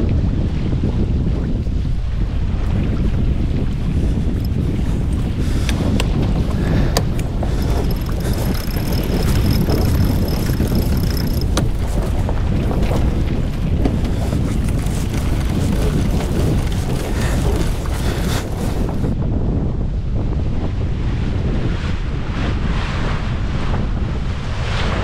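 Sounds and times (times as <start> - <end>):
wind buffeting microphone: 0.0 - 25.0
water rushing along hull: 0.1 - 19.2.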